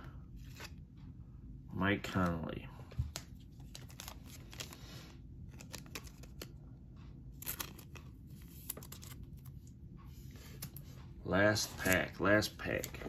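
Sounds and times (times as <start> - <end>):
low steady hum: 0.0 - 13.0
cards clicking and rustling: 2.1 - 6.6, 7.4 - 9.6, 11.5 - 13.0.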